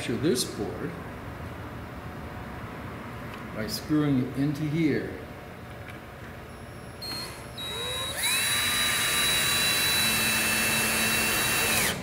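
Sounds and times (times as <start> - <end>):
power drill driving screw into wood: 7.0 - 12.0.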